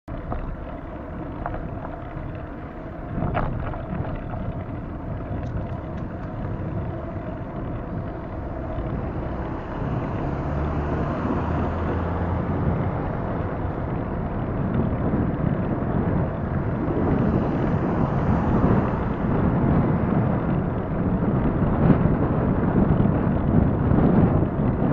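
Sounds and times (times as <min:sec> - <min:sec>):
low rumble of road noise: 0:00.0 - 0:24.9
wind rushing over microphone: 0:00.1 - 0:24.9.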